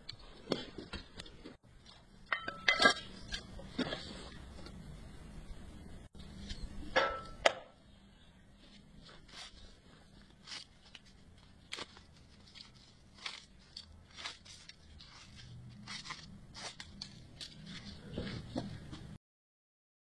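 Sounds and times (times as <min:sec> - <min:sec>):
plastic film crinkling: 0:09.1 - 0:18.2.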